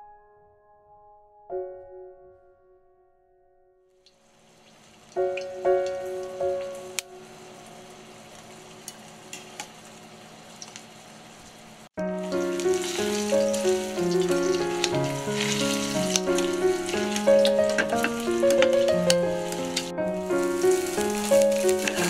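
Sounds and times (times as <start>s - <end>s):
garlic sizzling in oil: 4.1s - 22.0s
melodic background music: 12.0s - 22.0s.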